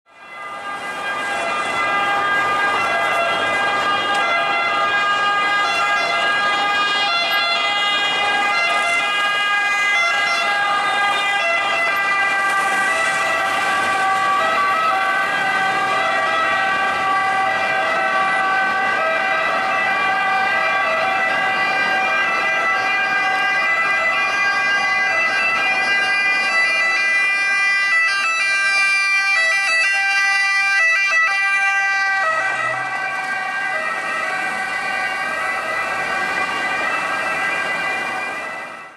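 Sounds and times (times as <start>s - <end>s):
ambulance siren: 0.1s - 38.9s
light street traffic: 0.1s - 38.9s
two-tone fire engine siren: 0.1s - 38.9s.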